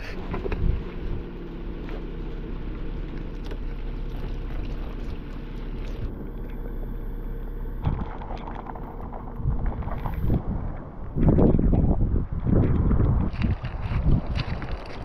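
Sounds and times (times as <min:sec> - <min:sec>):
wind buffeting microphone: 0:00.0 - 0:01.7, 0:07.8 - 0:15.0
low rumbling noise: 0:00.0 - 0:15.0.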